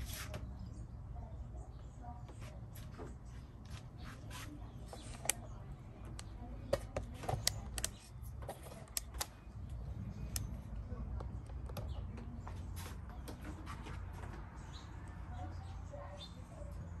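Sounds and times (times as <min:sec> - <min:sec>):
sharp clicks and ticks: 0:06.1 - 0:08.0, 0:08.8 - 0:12.0
low steady rumble: 0:09.3 - 0:12.4.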